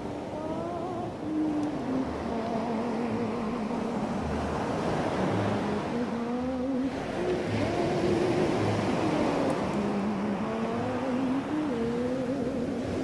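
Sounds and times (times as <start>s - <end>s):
ocean surf: 0.0s - 13.0s
soft slow music: 0.0s - 13.0s.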